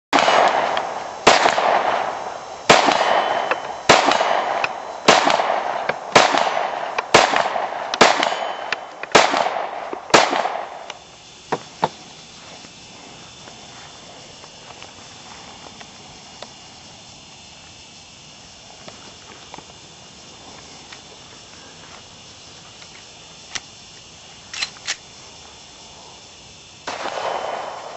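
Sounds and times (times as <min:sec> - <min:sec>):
outdoor background: 0:00.1 - 0:27.9
handgun shots with echo: 0:02.7 - 0:10.9.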